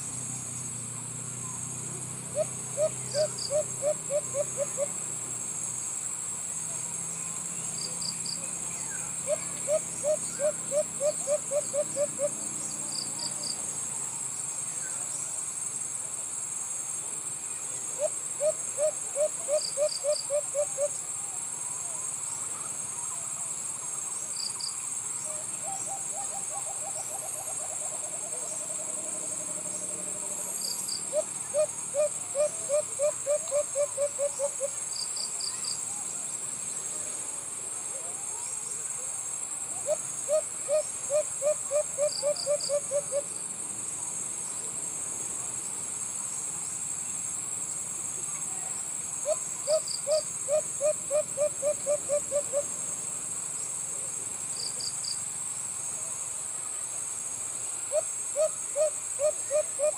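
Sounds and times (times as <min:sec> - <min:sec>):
high insect drone: 0:00.0 - 0:59.9
dove cooing: 0:02.3 - 0:04.9, 0:09.2 - 0:12.4, 0:18.0 - 0:21.0, 0:31.1 - 0:34.7, 0:39.8 - 0:43.3, 0:49.2 - 0:52.7, 0:57.9 - 0:59.9.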